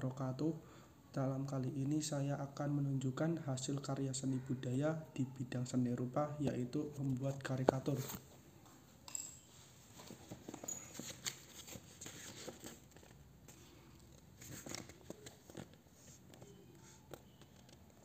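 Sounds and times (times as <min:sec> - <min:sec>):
paper rustling: 0:09.9 - 0:18.0.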